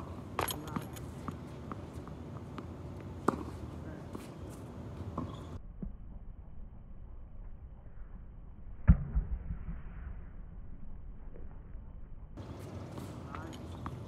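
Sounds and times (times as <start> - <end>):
faint outdoor background: 0.0 - 14.0
tennis ball struck: 2.6 - 3.6.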